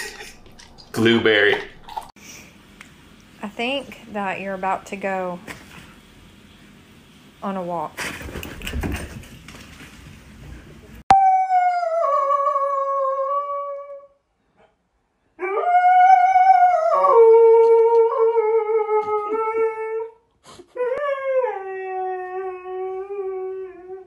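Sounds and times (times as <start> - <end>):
dog howling: 11.1 - 14.2, 15.4 - 20.2.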